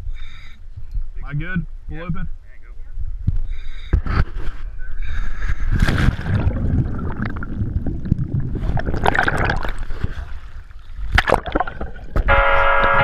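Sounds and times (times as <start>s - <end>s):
water splashing and gurgling: 5.5s - 12.3s.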